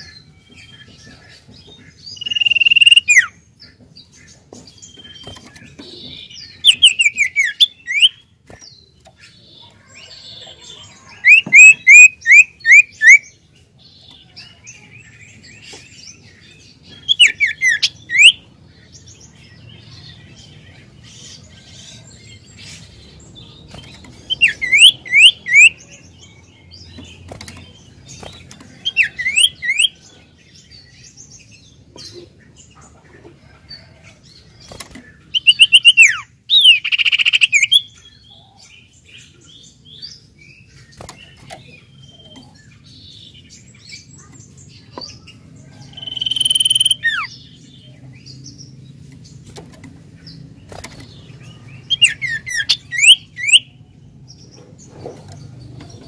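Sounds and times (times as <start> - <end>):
bird singing whistled notes: 2.2 - 3.3, 6.6 - 8.2, 11.3 - 13.3, 24.4 - 25.8, 35.4 - 37.9, 45.9 - 47.3, 51.9 - 53.8.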